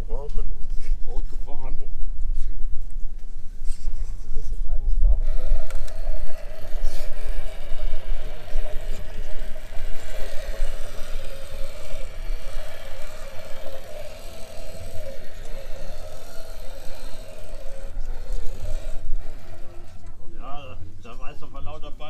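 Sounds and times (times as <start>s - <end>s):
electric motor whining: 5.1s - 20.4s.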